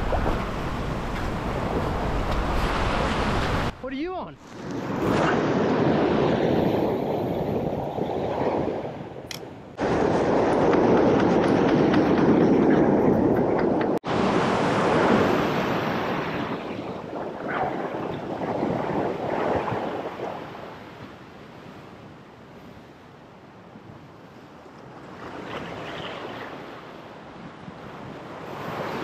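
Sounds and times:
ocean surf washing over rocks: 0.0s - 5.1s.

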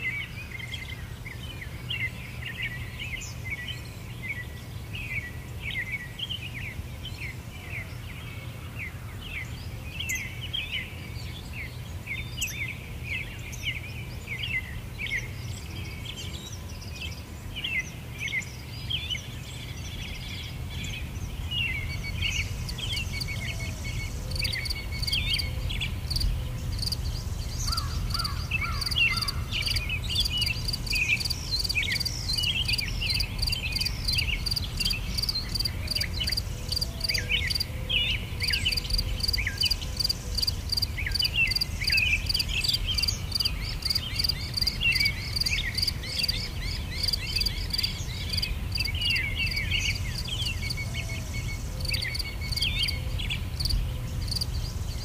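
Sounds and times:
small birds chirping: 0.0s - 55.0s
insect pulsing high chirp: 22.4s - 25.5s.

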